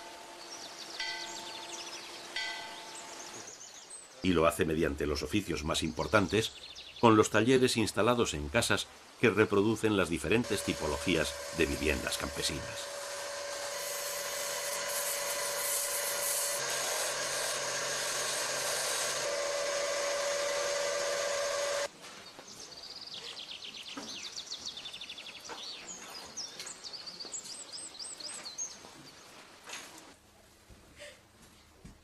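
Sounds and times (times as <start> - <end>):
birds chirping: 0.0 - 13.0, 14.0 - 29.4
chisel cutting spinning wood: 10.4 - 21.9
wood lathe running: 10.4 - 21.9.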